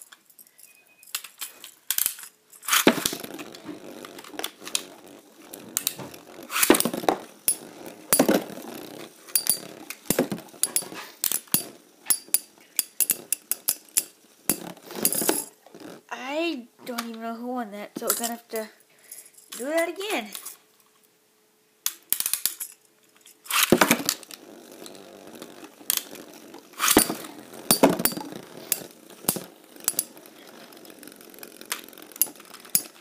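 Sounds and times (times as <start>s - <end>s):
spinning tops whirring and scraping: 0.0s - 16.1s, 23.3s - 33.0s.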